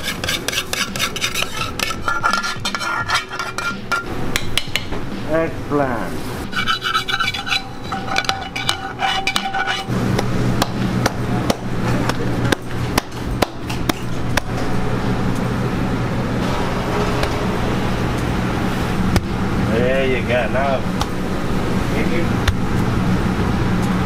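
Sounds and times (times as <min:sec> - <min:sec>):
low hum of kitchen equipment: 0:00.0 - 0:24.0
steady high tones: 0:16.2 - 0:21.4.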